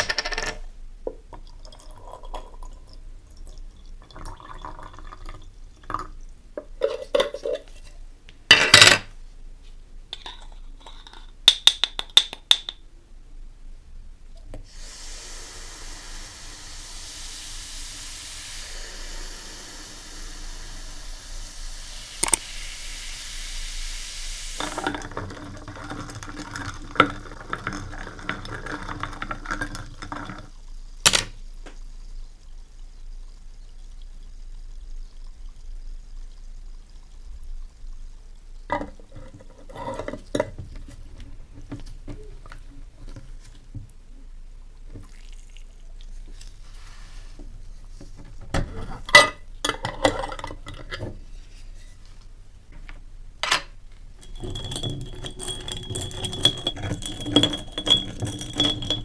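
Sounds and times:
liquid pouring into glass jar: 1.1s - 7.7s, 24.6s - 31.0s, 45.0s - 46.7s, 54.1s - 59.0s
acid fizzing: 14.6s - 41.1s, 44.7s - 48.0s
stick stirring liquid: 24.6s - 30.7s, 54.1s - 59.0s
metal clinking against glass: 53.6s - 59.0s
stick tapping glass jar: 54.2s - 59.0s.

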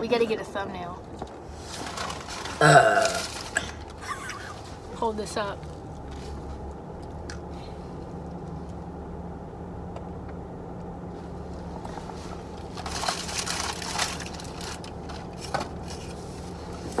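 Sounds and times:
low car cabin hum: 0.0s - 17.0s
paper wrapping crinkling: 1.6s - 4.0s, 12.6s - 16.2s.

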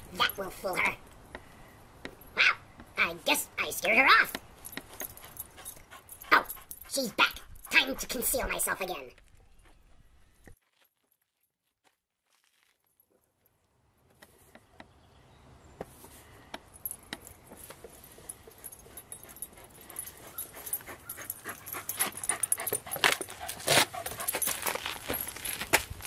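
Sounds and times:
dog playing with frisbee: 17.1s - 26.0s.

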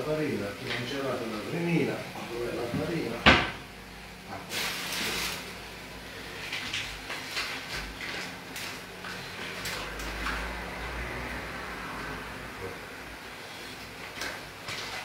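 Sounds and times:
flour bag rustling: 4.5s - 5.7s.

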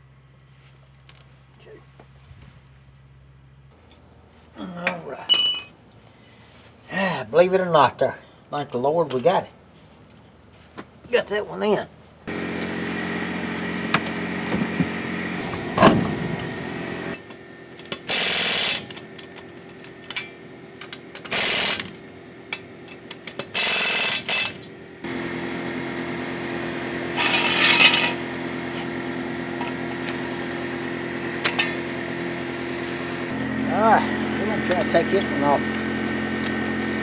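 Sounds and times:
steady mechanical hum: 0.0s - 37.0s
sharp metal clank: 5.3s - 5.8s
power tool running lug nuts: 12.3s - 37.0s.

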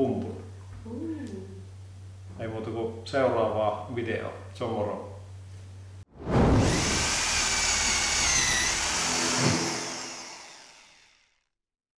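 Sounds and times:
loud whooshing swell: 6.1s - 7.4s.

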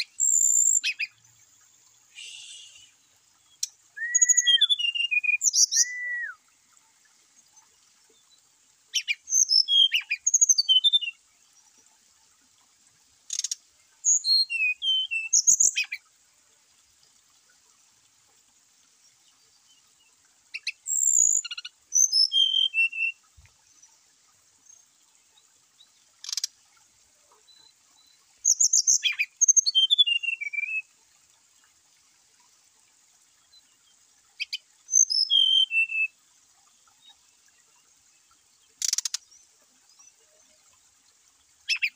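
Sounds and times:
bird whistling song: 0.2s - 1.1s, 2.1s - 3.0s, 4.0s - 6.4s, 9.0s - 11.2s, 13.3s - 16.0s, 20.6s - 23.2s, 28.4s - 30.9s, 34.4s - 36.2s, 41.6s - 41.9s.

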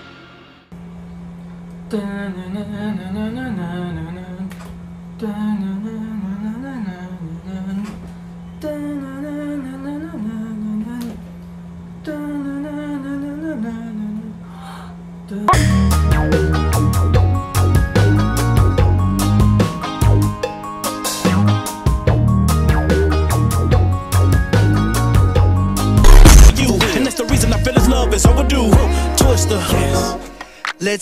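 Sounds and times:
low drone note: 15.5s - 17.4s, 26.0s - 26.7s.

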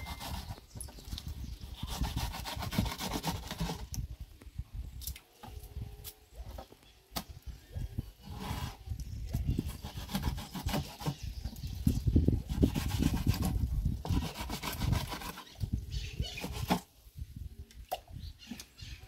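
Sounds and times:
knife scraping on wooden board: 0.0s - 0.6s.

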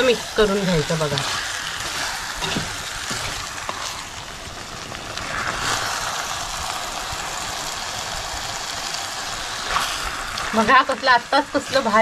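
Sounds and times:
spatula stirring in pot: 0.0s - 4.1s
chicken sizzling in pot: 0.0s - 12.0s.

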